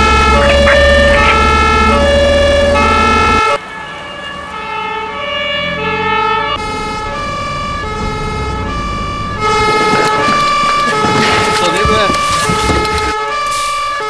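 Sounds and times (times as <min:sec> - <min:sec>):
two-tone fire engine siren: 0:00.0 - 0:14.0
deep engine rumble: 0:05.8 - 0:13.1.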